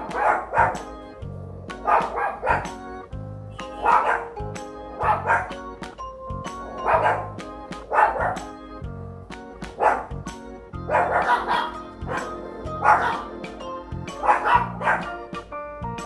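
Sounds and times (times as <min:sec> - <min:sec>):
dogs barking: 0:00.0 - 0:01.0, 0:01.7 - 0:02.9, 0:03.6 - 0:05.8, 0:06.5 - 0:08.6, 0:09.7 - 0:15.4
background music: 0:00.0 - 0:16.0.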